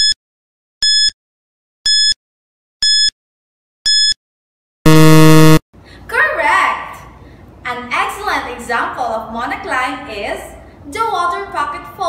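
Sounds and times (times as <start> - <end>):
low buzzer: 4.9 - 5.6
short high beeps: 4.9 - 5.6.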